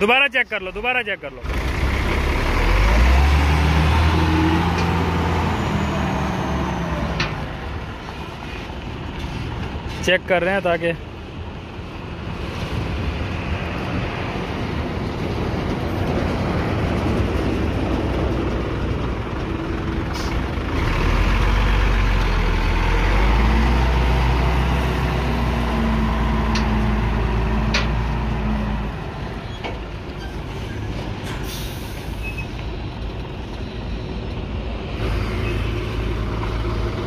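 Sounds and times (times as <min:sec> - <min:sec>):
diesel truck engine running: 0:00.6 - 0:09.9, 0:14.3 - 0:30.1
air brake hisses: 0:31.4 - 0:32.5.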